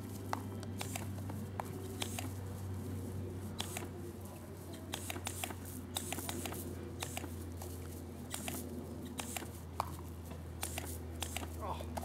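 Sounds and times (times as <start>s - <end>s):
steady low hum: 0.0s - 12.0s
short sharp clicks: 3.6s - 3.9s, 4.8s - 7.3s, 10.6s - 11.5s.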